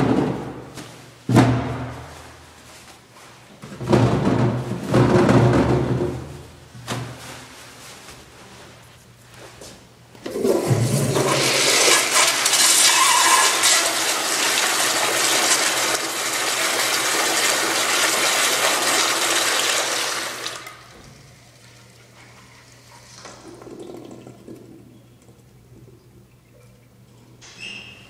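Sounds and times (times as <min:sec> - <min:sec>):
toilet flushing: 0:10.2 - 0:27.4.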